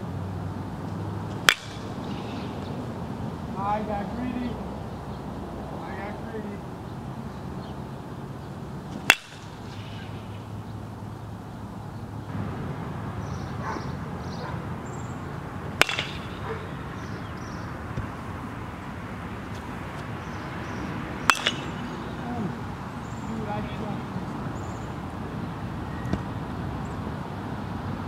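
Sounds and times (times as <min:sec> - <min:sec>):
low outdoor hum: 0:00.0 - 0:28.0
baseball bat cracking: 0:00.8 - 0:04.6, 0:08.7 - 0:11.0, 0:15.1 - 0:24.2.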